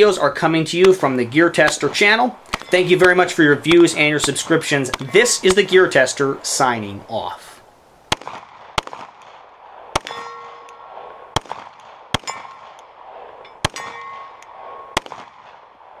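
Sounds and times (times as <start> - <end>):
pistol shots: 1.6 - 5.7, 8.1 - 16.0
steel target ringing: 10.0 - 11.2, 12.2 - 12.8, 13.4 - 15.2.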